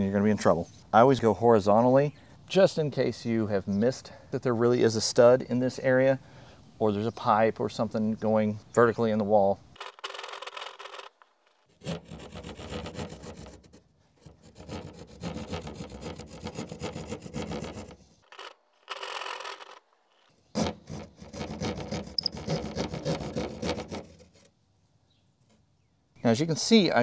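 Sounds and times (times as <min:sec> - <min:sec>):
hand saw rasping through drywall: 0:11.7 - 0:18.0, 0:20.6 - 0:24.5.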